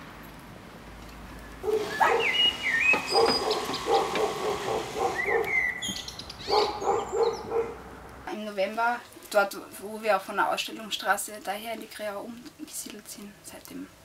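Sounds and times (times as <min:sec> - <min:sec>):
birds whistling: 0:01.3 - 0:07.8
dog barking: 0:01.6 - 0:02.4, 0:03.0 - 0:05.6, 0:06.4 - 0:07.8.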